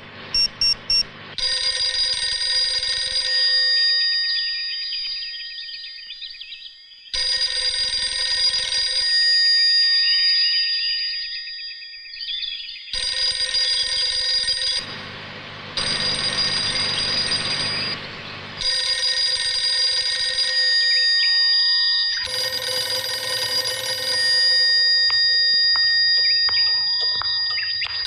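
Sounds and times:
telephone ringing: 0:00.0 - 0:04.0, 0:07.2 - 0:09.3, 0:13.0 - 0:21.3, 0:22.2 - 0:28.0.

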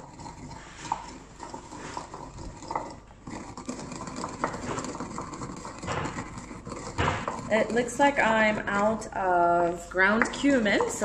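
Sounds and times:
pestle grinding in stone mortar: 0:00.0 - 0:11.0
pestle knocking on stone: 0:03.8 - 0:07.8, 0:10.1 - 0:11.0.

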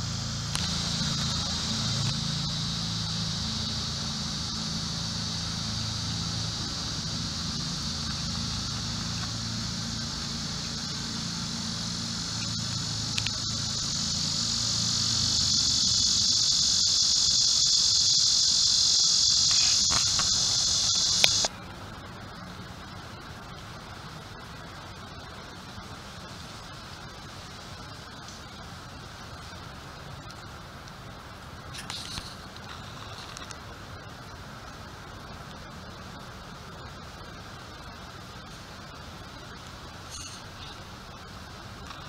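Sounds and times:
insects droning buzz: 0:00.0 - 0:42.0.

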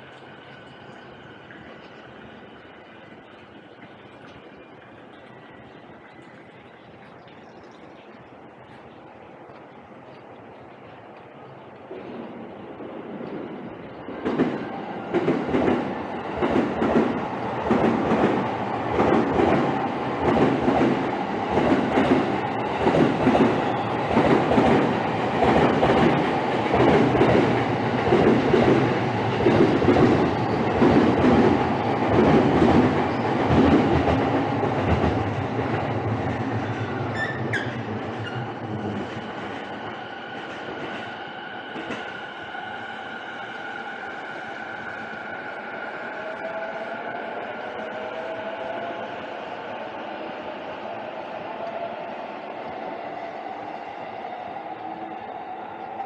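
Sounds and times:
passenger train passing: 0:00.0 - 0:07.2, 0:07.9 - 0:56.0
train wheels clacking on rail joints: 0:14.2 - 0:41.1.

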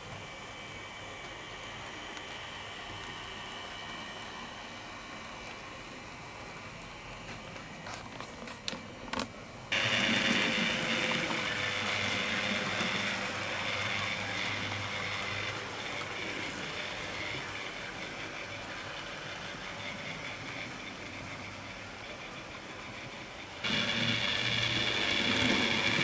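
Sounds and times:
model train rattling on track: 0:09.7 - 0:26.0.

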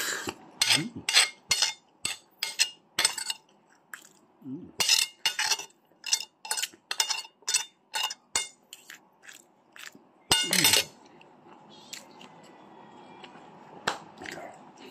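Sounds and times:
cutlery clinking on a plate: 0:00.6 - 0:03.4, 0:04.8 - 0:08.6, 0:10.3 - 0:11.0
loud spoon clink: 0:10.3 - 0:10.9.

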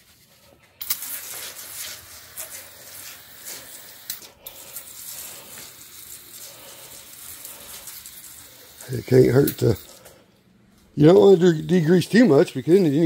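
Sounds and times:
aerosol can spraying: 0:00.8 - 0:10.0.

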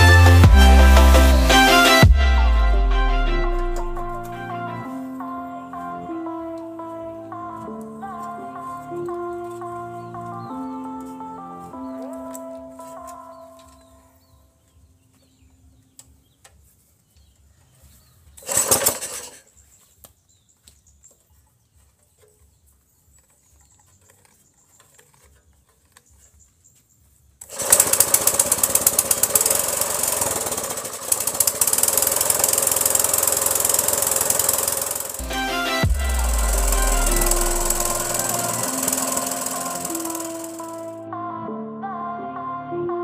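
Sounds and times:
small engine running: 0:18.4 - 0:19.4, 0:27.4 - 0:41.0
engine pull-start: 0:18.4 - 0:19.5, 0:27.4 - 0:40.9.

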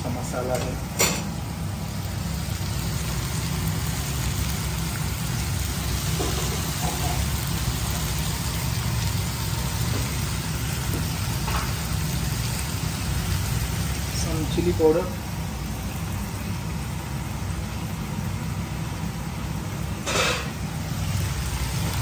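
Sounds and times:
gas stove low rumble: 0:00.0 - 0:22.0
meat and vegetables sizzling in a pan: 0:00.0 - 0:22.0.

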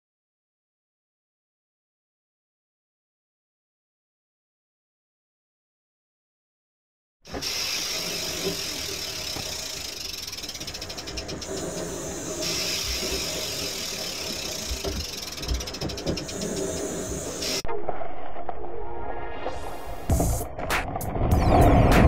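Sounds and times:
steady hiss: 0:07.3 - 0:17.6
mechanical ratcheting clicks: 0:07.4 - 0:17.6.

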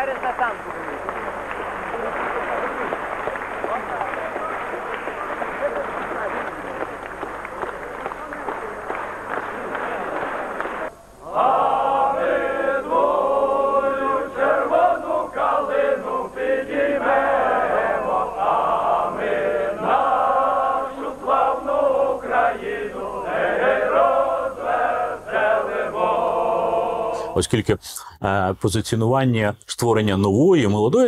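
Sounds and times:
men singing in unison: 0:11.2 - 0:27.4.

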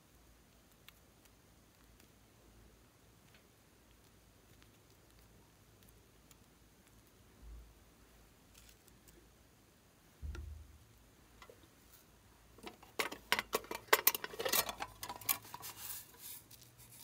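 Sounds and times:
tin box clicking and tapping: 0:12.6 - 0:15.3.

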